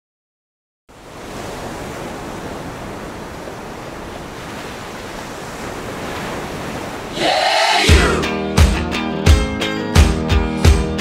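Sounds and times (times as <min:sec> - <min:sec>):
steady rushing noise: 0:02.6 - 0:08.2.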